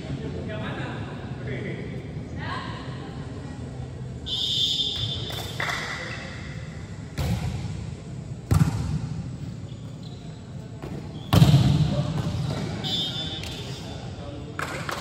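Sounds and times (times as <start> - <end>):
volleyball smacks: 7.2 - 7.6, 8.5 - 9.0.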